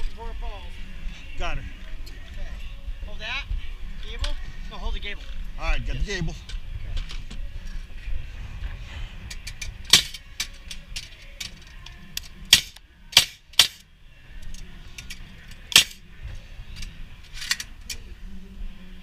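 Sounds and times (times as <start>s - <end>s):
nail gun firing into wood: 9.9s - 10.2s, 12.5s - 13.8s, 15.7s - 16.0s.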